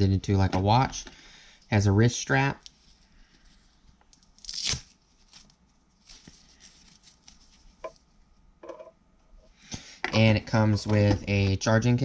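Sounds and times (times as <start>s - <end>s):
hook-and-loop strap tearing: 4.4s - 5.5s
faint fabric rustles: 5.1s - 7.8s.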